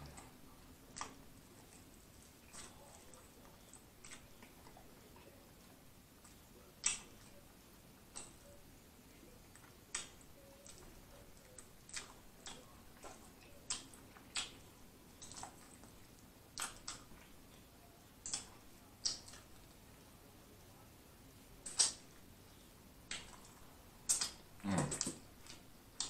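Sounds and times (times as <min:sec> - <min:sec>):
wet lip smacks and mouth clicks: 0:00.9 - 0:05.3, 0:06.2 - 0:07.4, 0:08.1 - 0:08.6, 0:09.4 - 0:17.4, 0:18.2 - 0:19.7, 0:21.6 - 0:22.2, 0:23.0 - 0:26.0.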